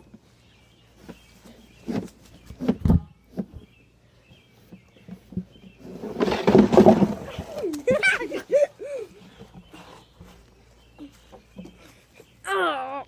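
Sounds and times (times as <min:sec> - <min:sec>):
birds chirping faintly: 0:00.0 - 0:13.0
tub scraping down steps: 0:04.7 - 0:10.4
plastic tub knocking on wooden deck: 0:06.1 - 0:07.5.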